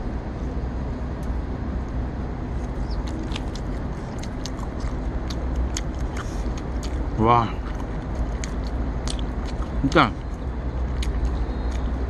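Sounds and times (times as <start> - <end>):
road traffic rumble: 0.0 - 12.0
crunchy chewing: 2.5 - 12.0.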